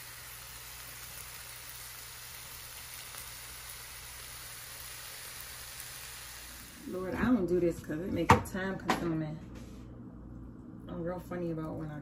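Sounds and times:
vegetables sizzling in pan: 0.0s - 7.4s.

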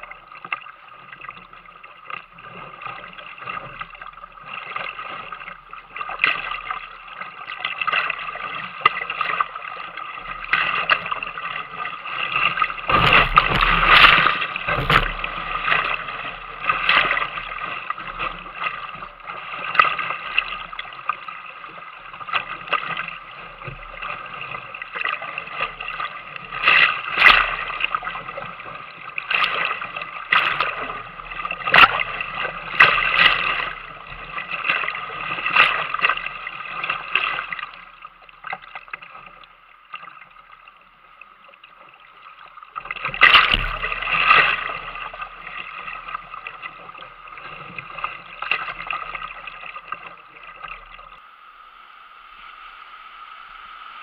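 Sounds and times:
splashes breaking over boat: 2.6s - 39.4s, 42.7s - 51.0s
whitewater rushing and splashing: 9.0s - 21.3s, 43.0s - 50.8s.

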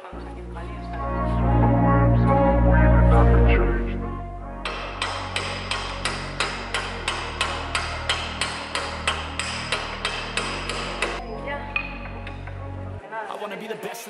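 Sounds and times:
hammer striking metal drift: 4.6s - 11.2s.

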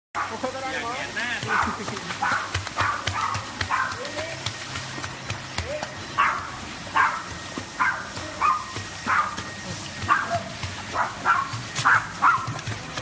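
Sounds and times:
dog yipping: 1.5s - 4.0s, 6.2s - 9.4s, 10.1s - 12.6s.

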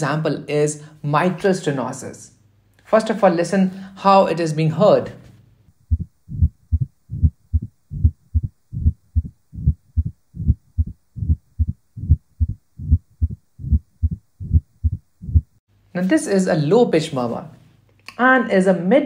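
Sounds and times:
low heartbeats: 5.7s - 15.6s
low rumbling heart murmur: 5.9s - 15.6s.

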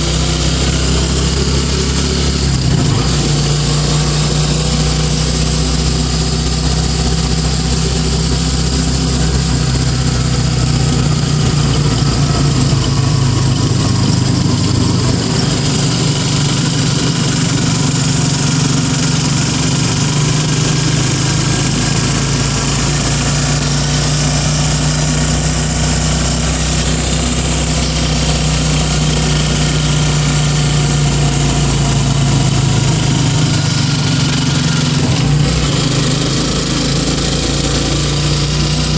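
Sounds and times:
motorcycle engine running: 0.0s - 38.9s.

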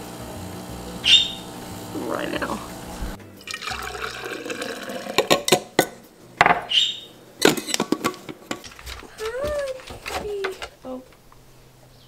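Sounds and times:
metal mug clinking: 3.6s - 6.0s, 7.4s - 8.9s
mug and lid clicking and knocking: 5.2s - 6.7s, 7.4s - 10.2s.

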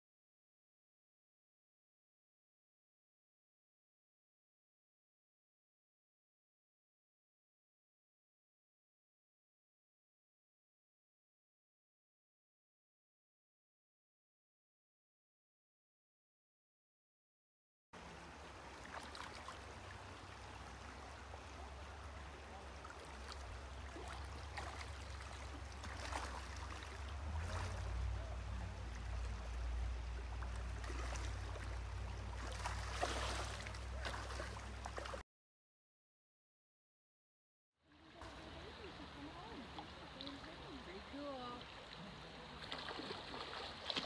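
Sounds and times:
creek gurgling over stones: 18.0s - 35.2s, 38.0s - 44.0s
fish splashing in water: 22.7s - 35.2s, 38.2s - 44.0s.

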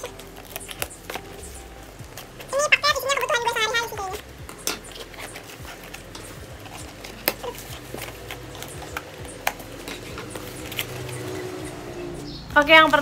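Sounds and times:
package rustling and crinkling: 0.0s - 11.8s
sharp clicks and snaps: 0.0s - 13.0s.

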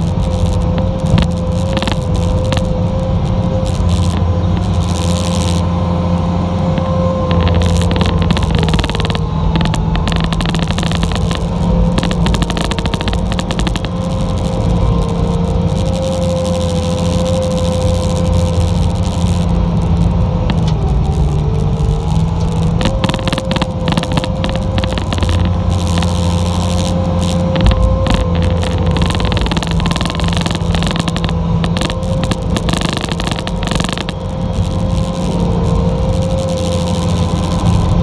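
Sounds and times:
diesel engine running under load: 0.0s - 38.0s
high whine: 0.0s - 38.0s
clicks and rattles: 6.8s - 16.1s, 22.0s - 35.2s.

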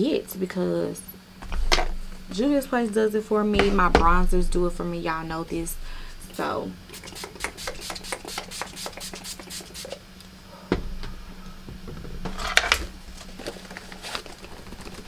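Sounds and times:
spray bottle spritzes: 6.9s - 10.0s.

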